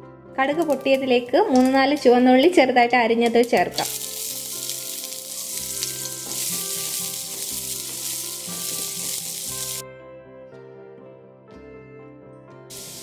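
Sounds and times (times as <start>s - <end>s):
soft background music: 0.0s - 13.0s
shallots sizzling in oil: 3.2s - 9.8s, 12.7s - 13.0s.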